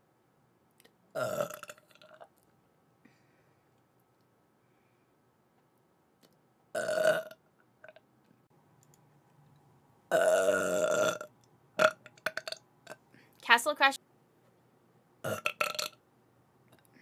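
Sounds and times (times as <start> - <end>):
woman burping: 1.2 - 2.1, 6.8 - 7.3, 10.1 - 13.0, 15.2 - 16.0.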